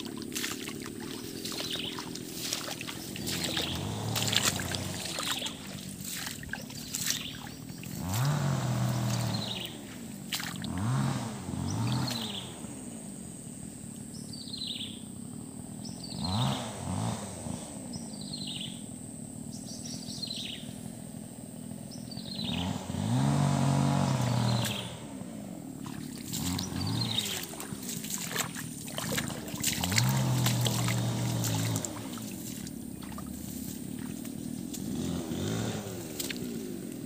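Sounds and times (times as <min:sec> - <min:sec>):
low pitched hum: 0:00.0 - 0:16.1, 0:24.1 - 0:37.0.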